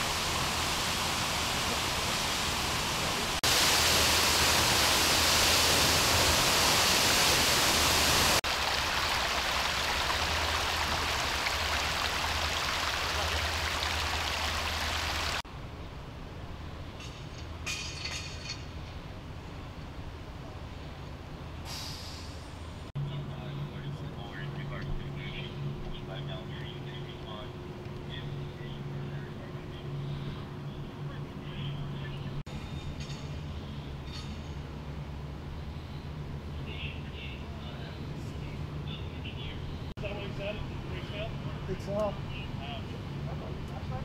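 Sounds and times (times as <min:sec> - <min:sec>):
water gushing from fire hydrant: 0:00.0 - 0:15.4.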